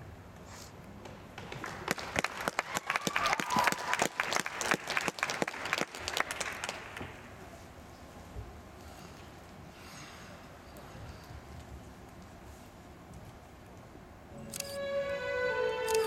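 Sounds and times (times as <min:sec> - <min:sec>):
small crowd clapping: 0:01.0 - 0:07.4.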